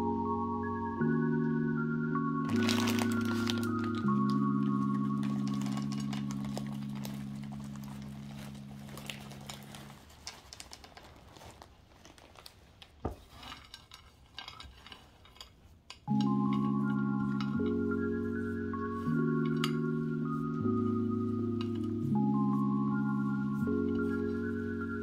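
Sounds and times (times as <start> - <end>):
held music chord: 0.0 - 10.0, 16.1 - 25.0.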